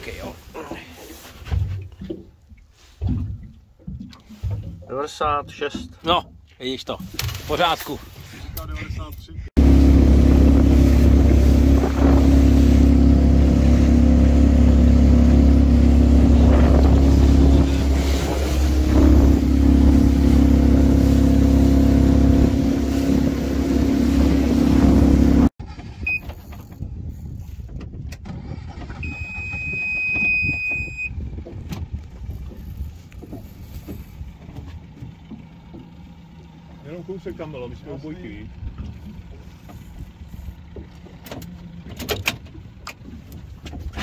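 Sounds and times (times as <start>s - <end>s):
boat engine running: 1.8s - 44.0s.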